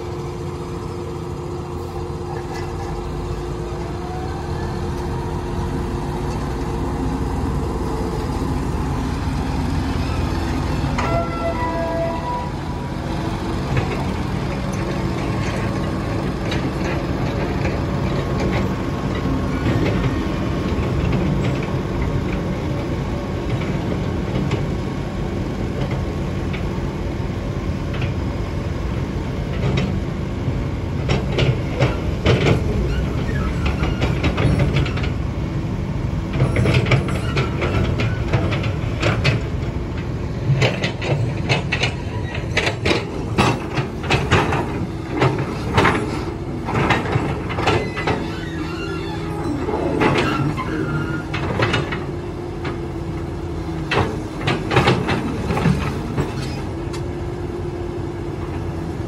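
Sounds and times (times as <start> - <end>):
diesel engine running: 0.0 - 59.0
metallic clanks and rattles: 36.3 - 52.8.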